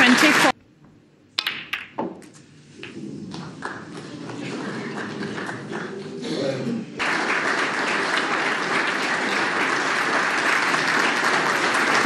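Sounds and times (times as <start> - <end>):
audience applauding: 3.3 - 6.2, 7.0 - 12.0.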